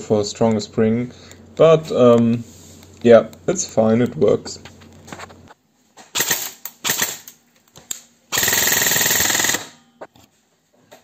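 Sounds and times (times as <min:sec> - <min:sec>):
airsoft gun firing: 0:06.2 - 0:07.3, 0:08.3 - 0:09.8.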